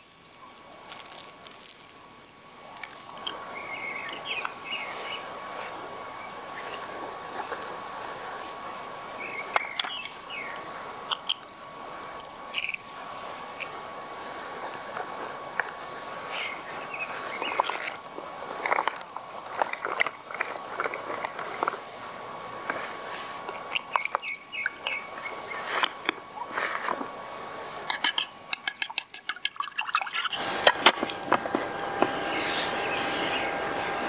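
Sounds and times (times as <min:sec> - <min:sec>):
birds chirping: 0:03.1 - 0:11.4, 0:14.5 - 0:21.8, 0:23.6 - 0:26.6, 0:30.1 - 0:34.0.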